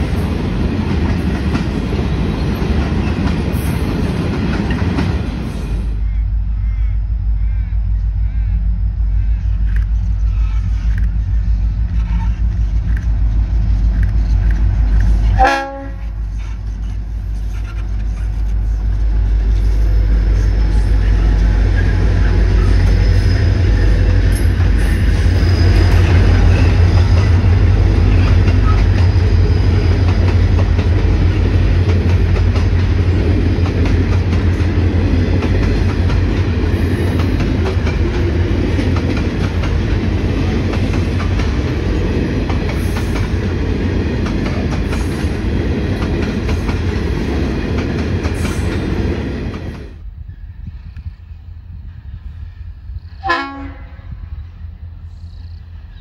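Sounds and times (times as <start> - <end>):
train wheels clattering on rails: 0.0 - 6.0, 9.2 - 50.0
diesel locomotive engine rumble: 0.0 - 56.0.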